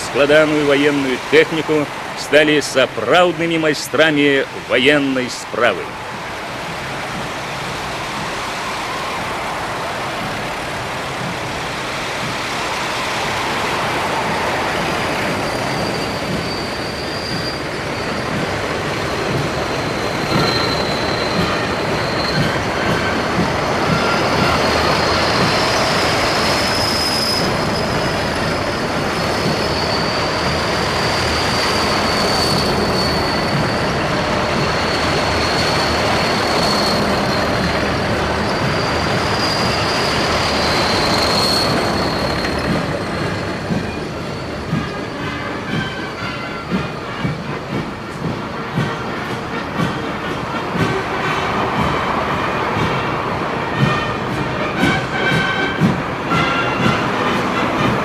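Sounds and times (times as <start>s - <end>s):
high wavering squeal: 12.8s - 18.6s, 19.2s - 23.3s, 23.9s - 45.4s.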